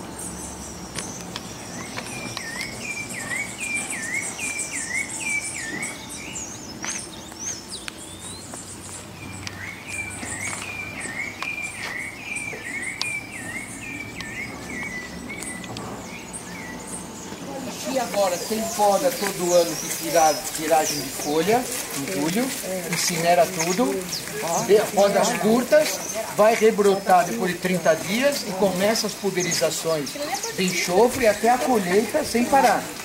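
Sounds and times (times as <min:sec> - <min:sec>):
high insect chirping: 0:00.0 - 0:33.0.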